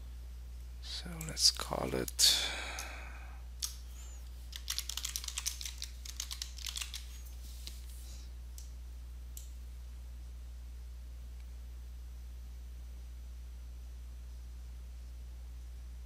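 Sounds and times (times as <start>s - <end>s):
low electrical hum: 0.0s - 16.0s
keyboard typing: 4.5s - 7.8s.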